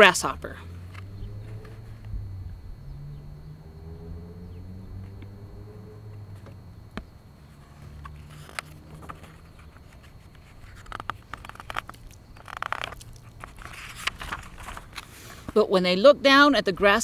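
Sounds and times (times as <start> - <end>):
passing traffic hum: 0.0 - 17.0
book pages turning: 7.6 - 15.6
paper rustling: 7.6 - 15.6.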